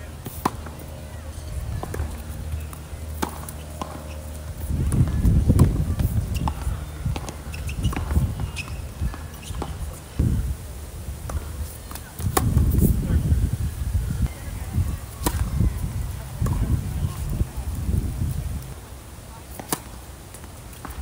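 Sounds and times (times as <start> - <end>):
racket hitting tennis ball: 0.2 - 0.8, 1.8 - 10.0, 11.3 - 12.9, 15.1 - 15.6, 16.2 - 16.7, 19.5 - 21.0.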